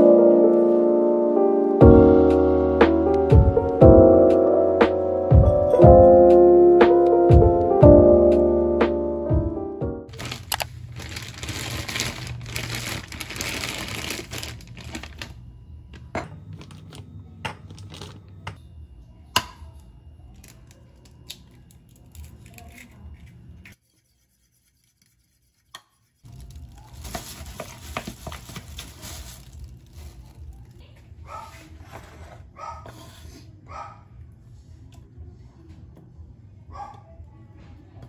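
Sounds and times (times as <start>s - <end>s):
rustling: 10.1s - 15.3s, 26.3s - 30.4s.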